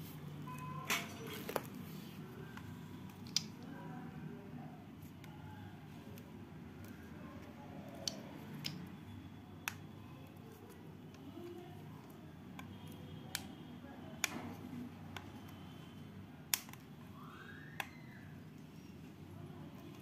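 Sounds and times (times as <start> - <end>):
faint low background noise: 0.0 - 20.0
plastic clicks and snaps: 2.5 - 3.8, 7.8 - 8.9, 9.6 - 11.3, 12.0 - 15.6, 16.5 - 17.0, 17.7 - 18.1.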